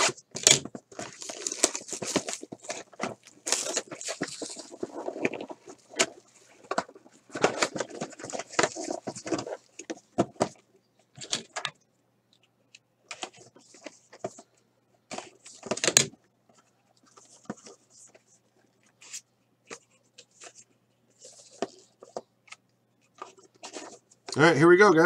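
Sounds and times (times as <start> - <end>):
cardboard and plastic clicks and rustles: 0.0 - 11.8, 13.1 - 24.4.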